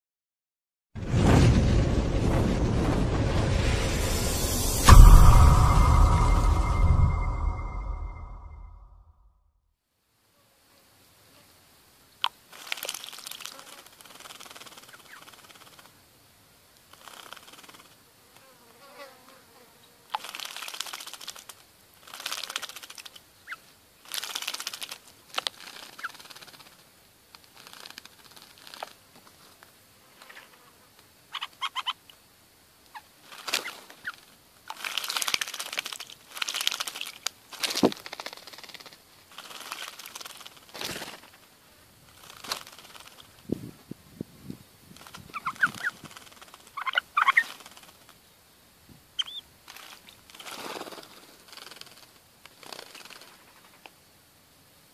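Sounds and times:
birds splashing in water: 34.7s - 38.7s.

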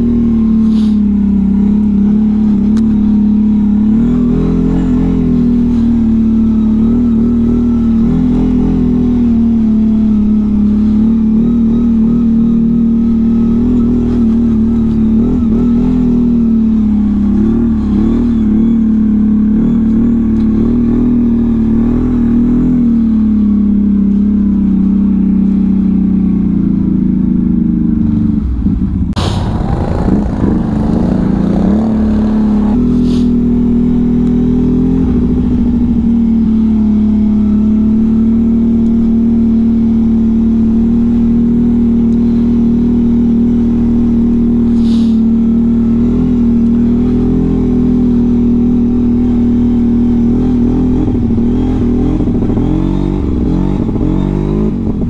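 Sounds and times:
atv engine running: 0.0s - 55.0s.

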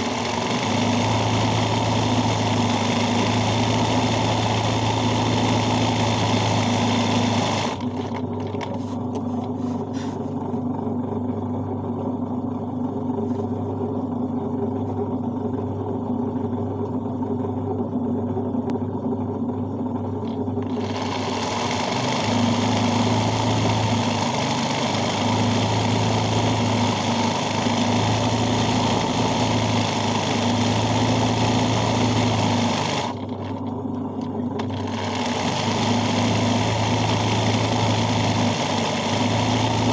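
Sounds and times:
sewing machine humming: 0.0s - 8.8s, 20.0s - 33.8s, 34.4s - 39.9s.

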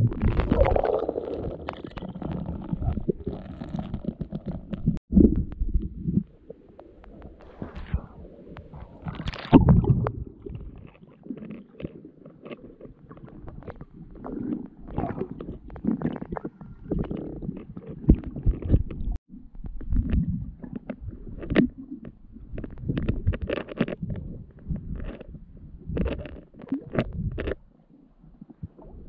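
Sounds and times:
muffled underwater rumbling: 0.0s - 29.0s
knocks underwater: 17.9s - 25.2s.

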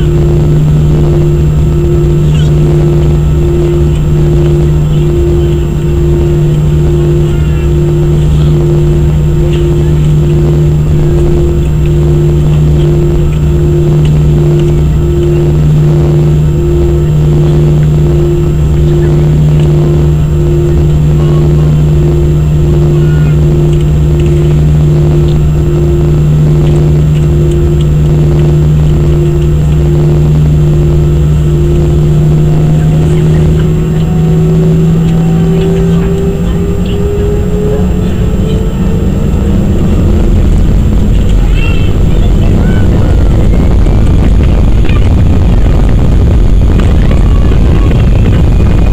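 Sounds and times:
jet engines droning with pulsing whine: 0.0s - 48.9s.

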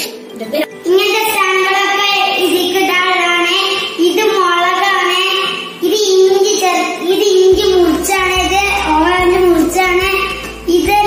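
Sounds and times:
child singing high sliding phrases: 0.9s - 11.0s.

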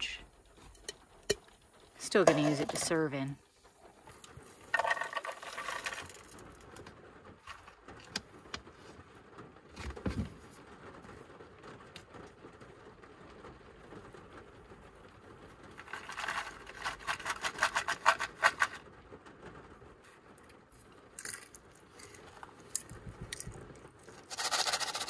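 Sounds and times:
shaker rattling: 4.3s - 6.5s, 15.8s - 18.8s, 24.2s - 25.0s.

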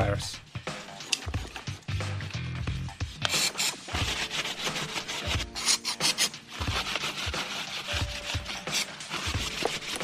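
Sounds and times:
cloth rag rubbing and wiping: 3.0s - 10.0s.

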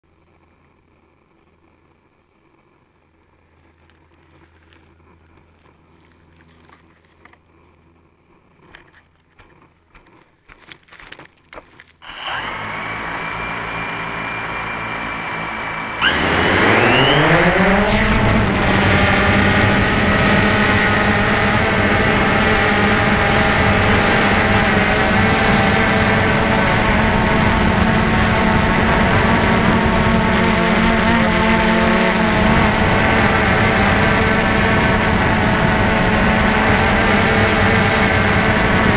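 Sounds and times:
drone motors and propellers: 8.4s - 38.9s.

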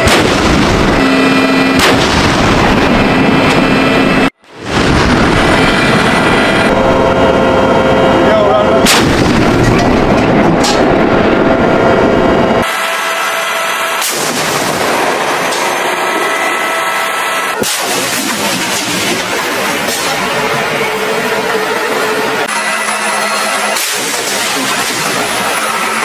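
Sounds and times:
tank gun firing: 0.0s - 3.0s, 8.8s - 10.4s, 17.6s - 20.3s, 23.8s - 25.6s
rumbling noise: 0.0s - 12.8s, 13.7s - 26.0s.

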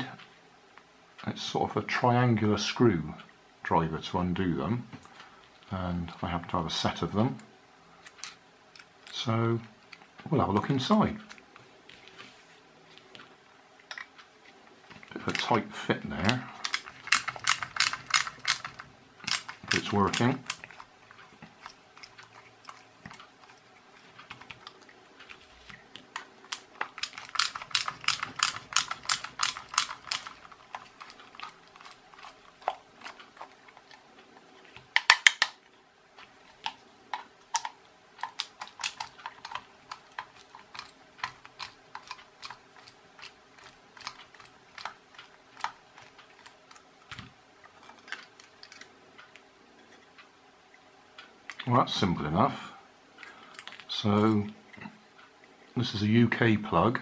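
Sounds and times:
screwdriver clicking: 35.0s - 35.6s.

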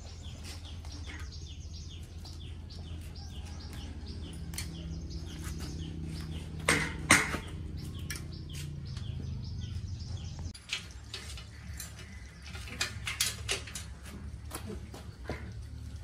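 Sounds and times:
bicycle chain clinking and rattling: 10.6s - 14.4s.

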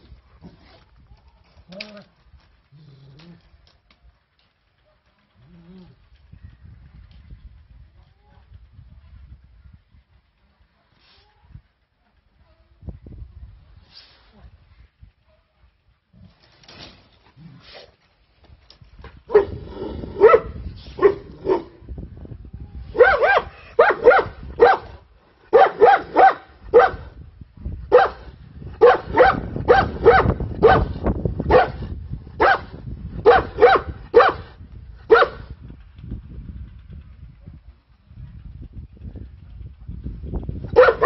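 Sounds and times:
dog barking: 19.3s - 19.6s, 20.2s - 21.7s, 23.0s - 24.9s, 25.5s - 27.1s, 27.9s - 28.2s, 28.8s - 30.9s, 31.5s - 31.8s, 32.4s - 34.5s, 35.1s - 35.4s, 40.8s - 41.0s.

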